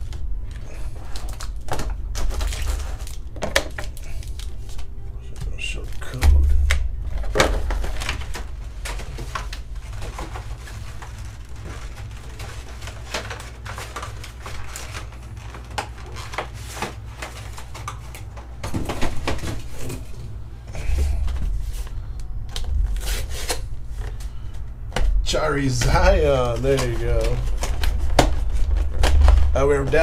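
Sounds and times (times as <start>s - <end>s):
plastic packaging clicks and rustles: 0.0s - 20.2s, 25.8s - 30.0s
low thump: 6.2s - 8.6s.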